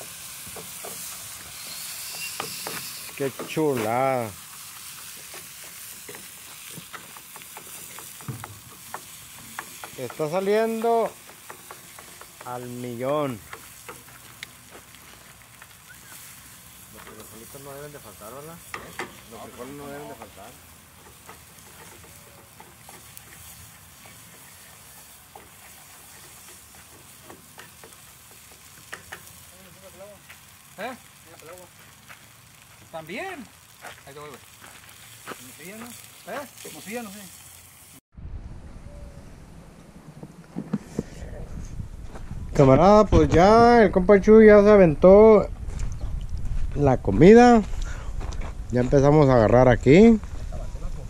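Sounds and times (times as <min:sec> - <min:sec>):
meat sizzling in a skillet: 0:00.0 - 0:38.0
wooden spoon tapping a pan: 0:05.3 - 0:12.6.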